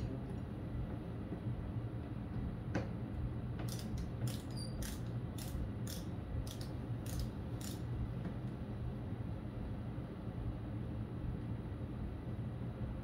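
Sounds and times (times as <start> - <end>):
steady low hum: 0.0 - 13.0
ratchet wrench clicking: 3.6 - 7.9.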